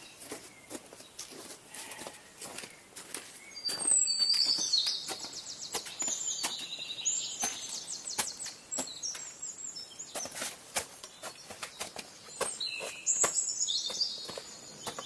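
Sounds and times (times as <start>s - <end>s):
footsteps crunching on icy snow: 0.0s - 15.0s
songbird trilling: 3.5s - 10.0s.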